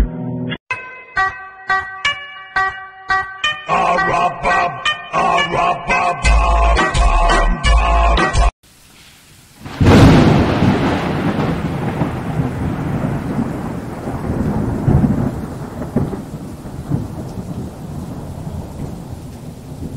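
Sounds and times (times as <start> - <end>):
thunder crack and rumble: 9.6 - 19.9.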